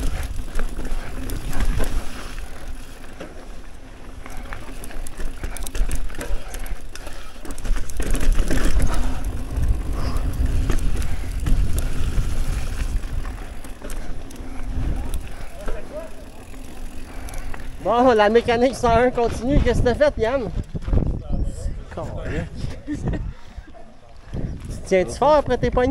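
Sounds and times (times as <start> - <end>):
bike chain and frame rattling: 0.0 - 21.0
bike tyres rumbling over dirt: 0.0 - 21.3
wind noise on microphone: 8.0 - 15.5, 17.8 - 25.9.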